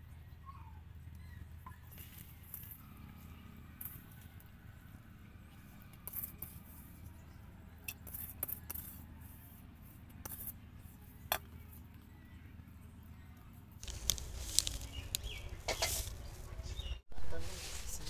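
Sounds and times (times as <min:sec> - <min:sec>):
hands handling food on leaf crackling: 0:13.8 - 0:18.0.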